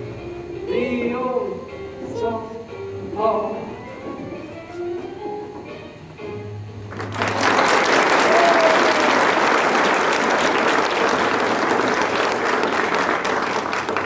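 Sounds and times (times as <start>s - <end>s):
audience applauding: 6.9s - 14.0s.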